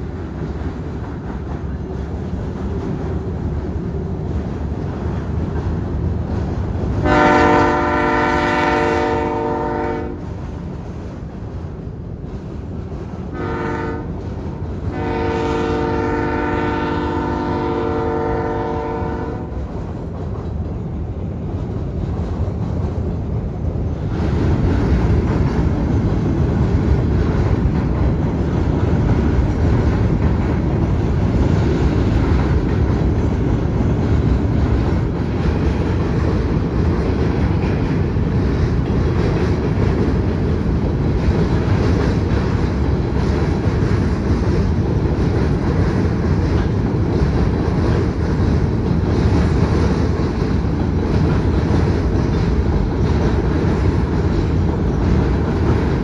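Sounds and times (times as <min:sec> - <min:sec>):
freight train rumble: 0:00.0 - 0:56.0
locomotive horn blasts: 0:07.0 - 0:10.3, 0:13.3 - 0:14.2, 0:14.9 - 0:19.5.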